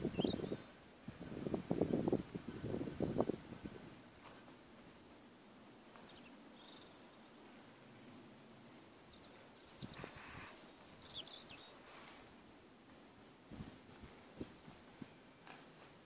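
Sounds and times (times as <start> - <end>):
high bird chirps: 0.1 - 0.7, 9.1 - 11.8.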